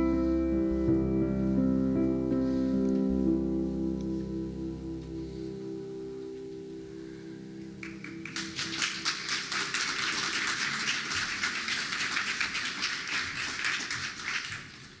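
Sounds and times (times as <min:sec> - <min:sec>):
congregation applauding: 0:07.8 - 0:15.0.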